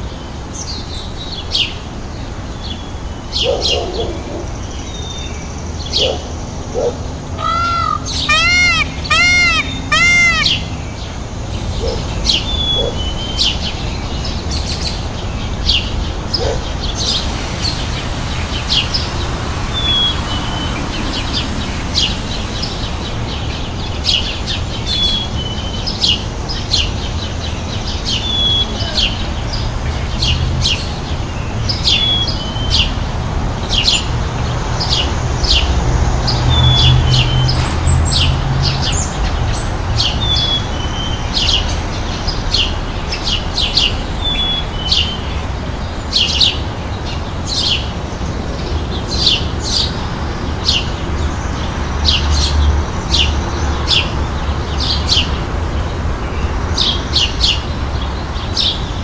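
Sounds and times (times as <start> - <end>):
small birds chirping: 0.6 - 33.0
short bird call: 7.4 - 10.6
low steady rumble: 15.4 - 25.7.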